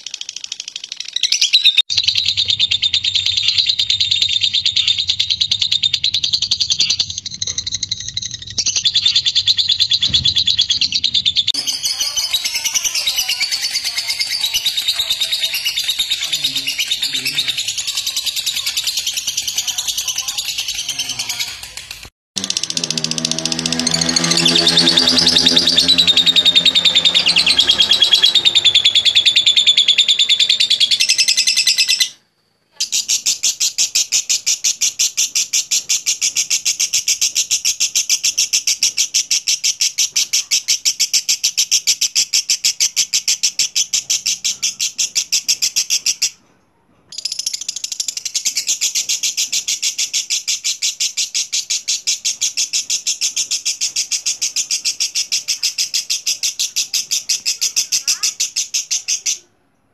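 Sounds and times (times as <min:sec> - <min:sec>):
lovebird chattering trill: 0:00.0 - 0:32.1, 0:47.2 - 0:59.4.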